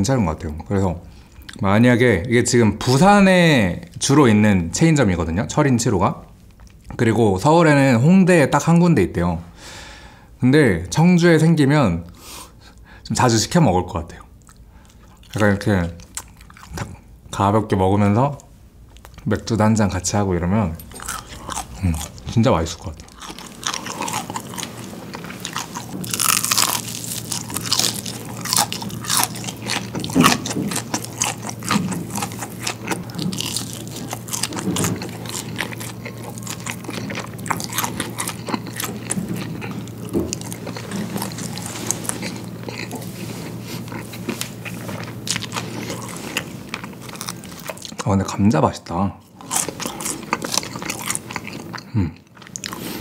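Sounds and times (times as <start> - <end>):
steady low hum: 0.0 - 53.0
chewing crunchy fried food: 6.3 - 7.0, 14.1 - 17.2, 18.4 - 19.5, 20.8 - 53.0.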